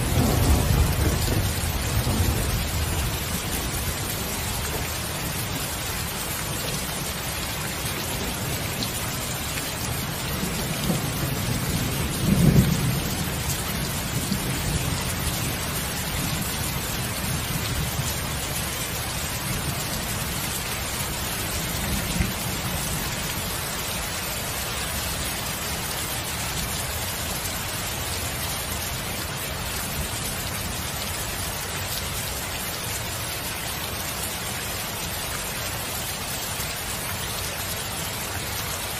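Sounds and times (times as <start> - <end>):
rolling rumble of thunder: 0.0 - 5.6, 10.2 - 18.5
steady rain: 0.0 - 38.9.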